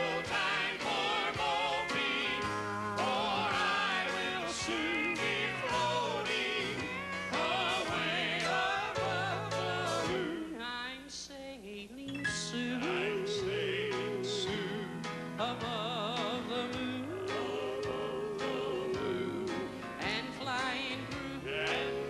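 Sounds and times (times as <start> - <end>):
live band playing: 0.0 - 10.4
male quartet singing in harmony: 0.0 - 11.0, 12.1 - 22.0.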